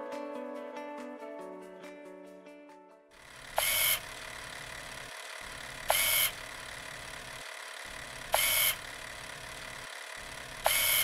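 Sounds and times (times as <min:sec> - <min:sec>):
steady low hum: 0:03.3 - 0:11.0.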